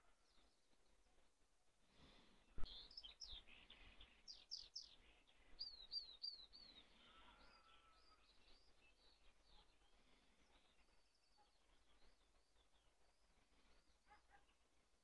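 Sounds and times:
small birds chirping: 2.0 - 14.8.

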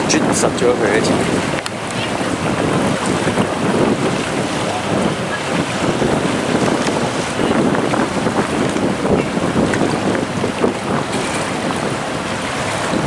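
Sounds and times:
wind buffeting microphone: 0.0 - 13.0.

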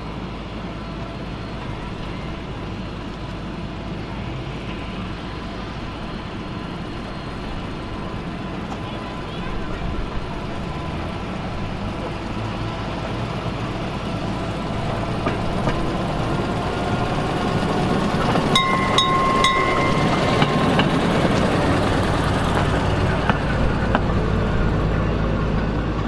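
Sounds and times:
rail motor car engine running: 0.0 - 26.0.

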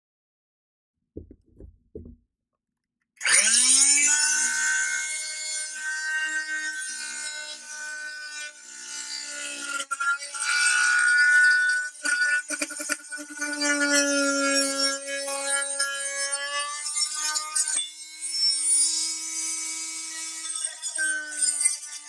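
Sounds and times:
oscillating multi-tool cutting pipe: 3.2 - 22.0.

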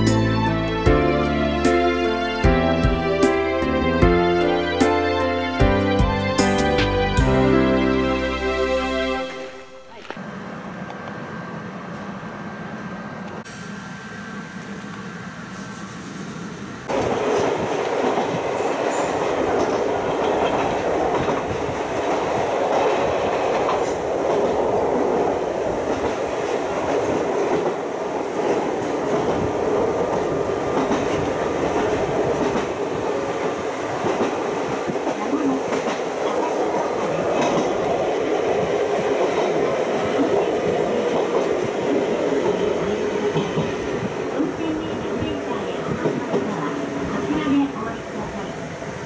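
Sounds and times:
train running noise: 0.0 - 49.0.

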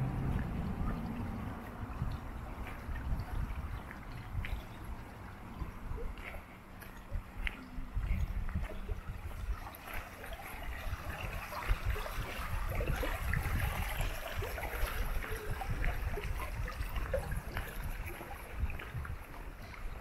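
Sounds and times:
low rumble: 0.0 - 6.2
stream trickling and burbling: 0.0 - 20.0.

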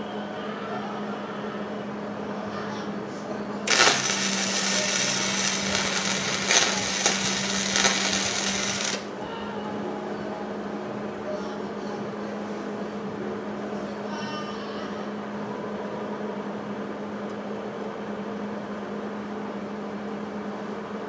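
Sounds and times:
welding arc crackling: 3.7 - 9.2.

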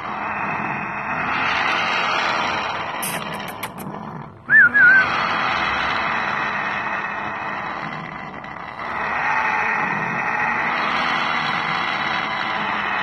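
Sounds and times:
parrot whistle: 4.5 - 5.2.

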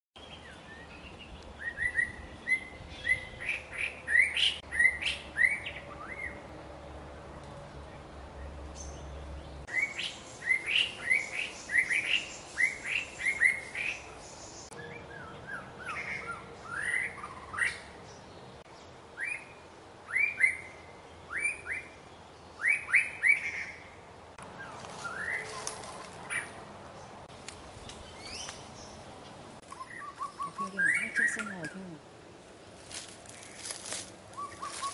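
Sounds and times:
bird singing whistled notes: 0.2 - 6.4, 9.7 - 17.8, 19.2 - 21.9, 22.6 - 23.8, 29.7 - 31.7, 34.4 - 34.9.

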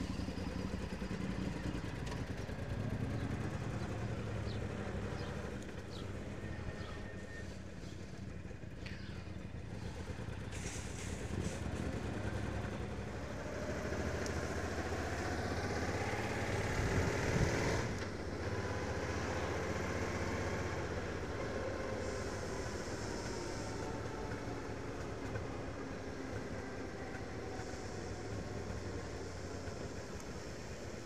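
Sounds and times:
motorcycle engine running: 0.0 - 7.0.

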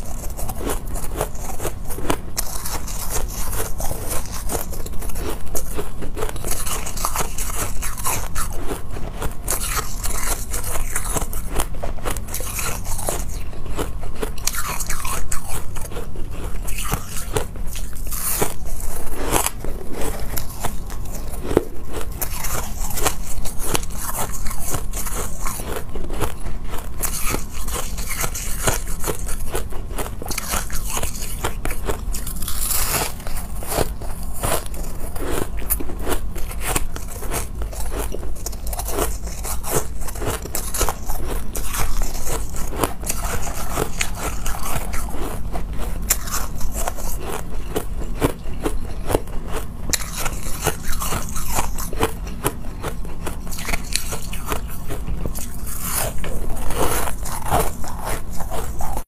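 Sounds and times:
chewing crunchy ice: 0.0 - 59.0.

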